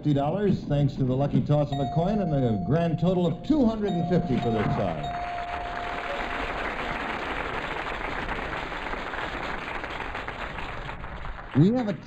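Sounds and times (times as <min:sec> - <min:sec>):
steady held tone: 0:01.7 - 0:07.1
studio audience applauding: 0:04.2 - 0:12.0.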